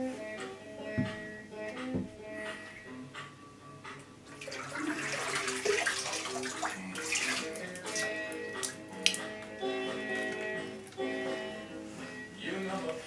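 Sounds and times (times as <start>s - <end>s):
music with plucked strings: 0.0s - 13.0s
water splashing into bathtub: 4.3s - 9.5s.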